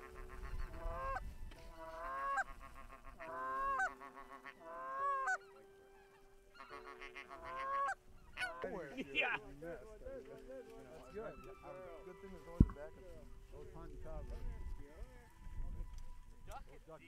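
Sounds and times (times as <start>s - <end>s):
goose honking: 0.0s - 9.4s, 10.9s - 12.1s.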